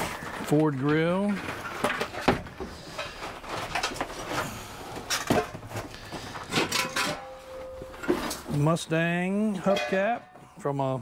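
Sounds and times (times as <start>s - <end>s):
metal parts knocking and clattering: 5.0s - 8.5s.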